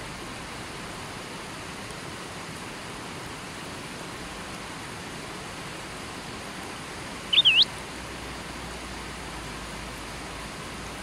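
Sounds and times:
river water rushing: 0:00.0 - 0:11.0
bird chirp: 0:07.3 - 0:07.7.

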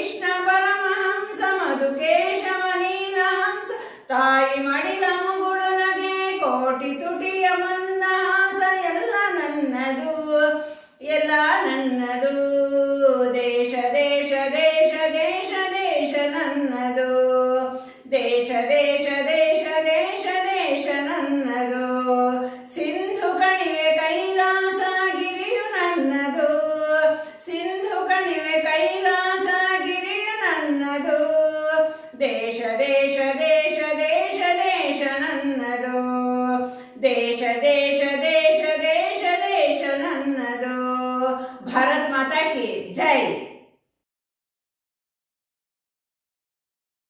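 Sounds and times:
woman singing unaccompanied: 0:00.0 - 0:43.4
singer breathing: 0:03.7 - 0:04.1, 0:10.6 - 0:11.0, 0:17.7 - 0:18.1, 0:22.4 - 0:22.7, 0:27.1 - 0:27.4, 0:31.8 - 0:32.2, 0:36.6 - 0:37.0, 0:41.4 - 0:41.6.

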